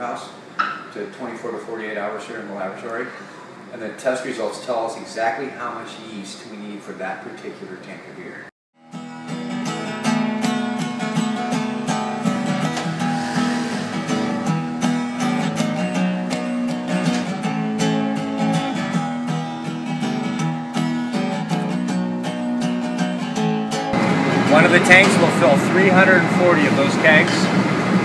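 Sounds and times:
strummed acoustic guitar music: 8.8 - 27.8.

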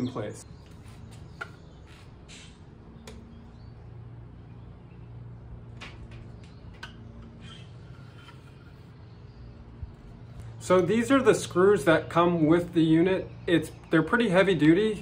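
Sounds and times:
low background hum: 0.0 - 15.0.

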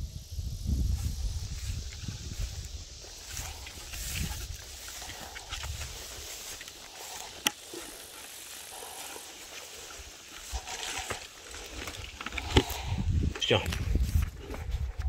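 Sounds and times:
footsteps through tall grass: 0.4 - 15.0.

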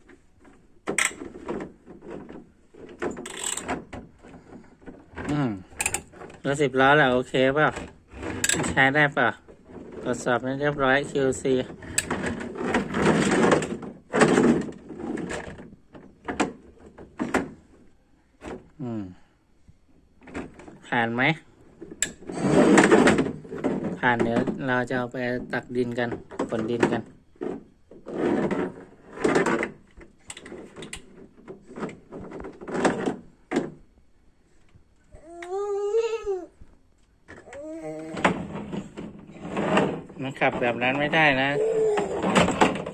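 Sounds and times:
plastic toy truck scraping: 0.0 - 15.7, 21.8 - 24.8, 25.8 - 33.3, 37.8 - 42.9.

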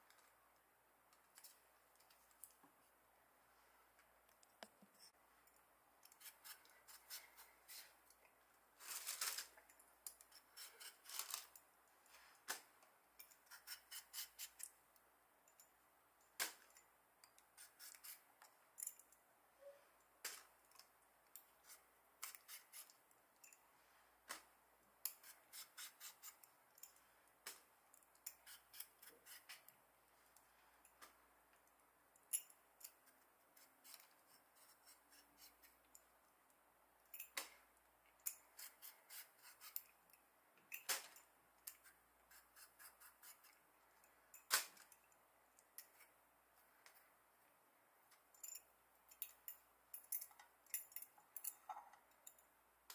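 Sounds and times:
blade scraping potato skin: 10.3 - 11.5.

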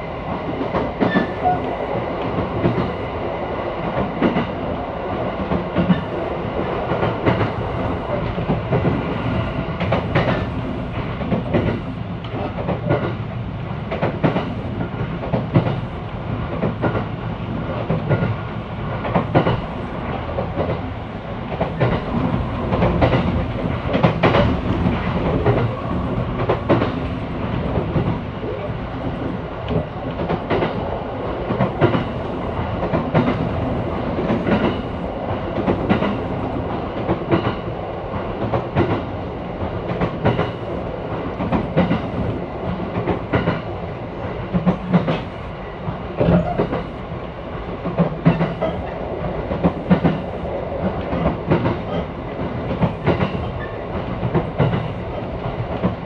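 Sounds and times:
train rumble: 0.0 - 56.0
wheels clicking over rail joints: 9.8 - 13.2, 17.8 - 20.9, 21.5 - 30.8, 47.8 - 56.0.

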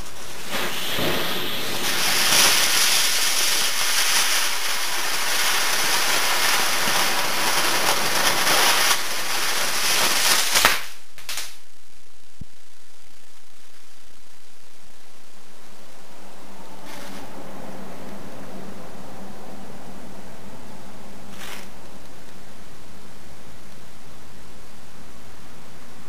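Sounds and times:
firework fountain hissing: 0.0 - 11.7, 12.7 - 26.0
sharp cracks: 0.0 - 12.6.

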